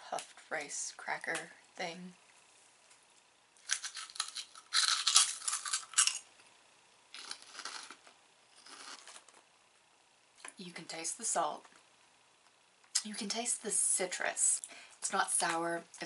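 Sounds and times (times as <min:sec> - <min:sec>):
person crunching rice cracker: 0:03.6 - 0:06.3, 0:07.1 - 0:09.4.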